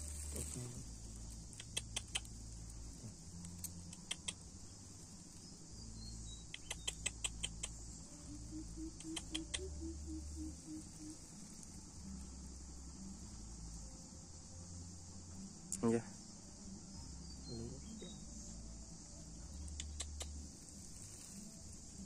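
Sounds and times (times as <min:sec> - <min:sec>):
field insects buzzing: 0:00.0 - 0:22.0
small sharp clicks: 0:01.5 - 0:02.4, 0:03.4 - 0:04.4, 0:06.5 - 0:07.8, 0:19.6 - 0:20.4.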